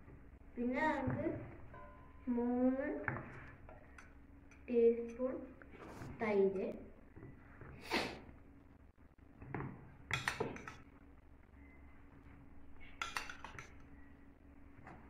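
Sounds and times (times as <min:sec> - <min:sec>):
metal spoon clinking against bowls: 0:01.7 - 0:02.3, 0:03.2 - 0:05.3, 0:10.1 - 0:10.9, 0:12.8 - 0:14.0.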